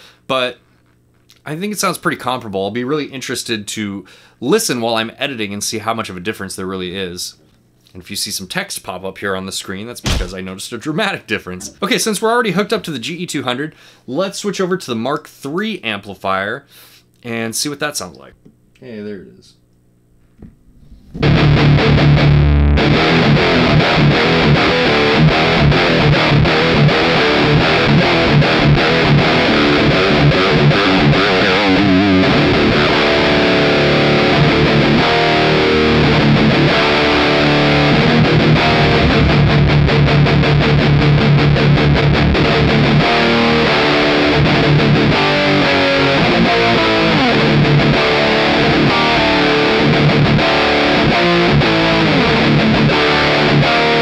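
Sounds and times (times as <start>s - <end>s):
distorted electric guitar: 20.9s - 54.0s.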